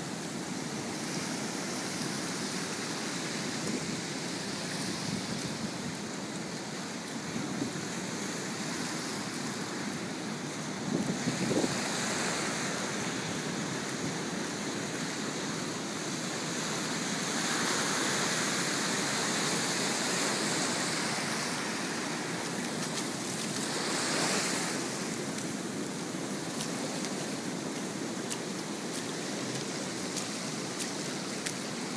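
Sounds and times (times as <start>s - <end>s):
ocean surf washing on beach: 0.0s - 31.9s.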